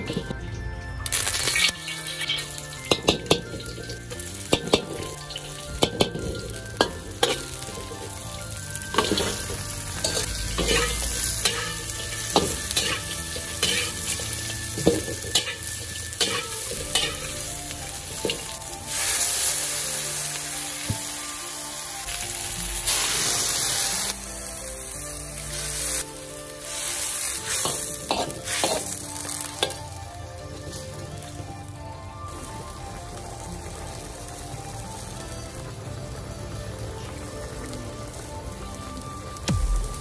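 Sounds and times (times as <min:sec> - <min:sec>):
food sizzling in oil: 0:01.0 - 0:40.0
spatula scraping a wok: 0:01.1 - 0:21.6, 0:22.4 - 0:30.0.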